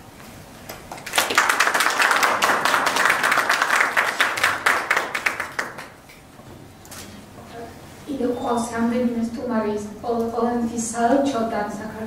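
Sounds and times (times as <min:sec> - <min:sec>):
audience applauding: 0:00.9 - 0:06.0.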